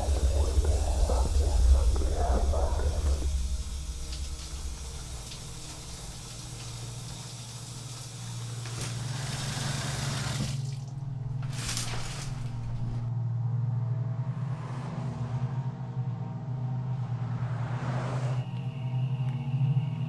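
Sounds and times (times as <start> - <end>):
low steady hum: 0.0 - 14.0
shower water running: 0.1 - 13.0.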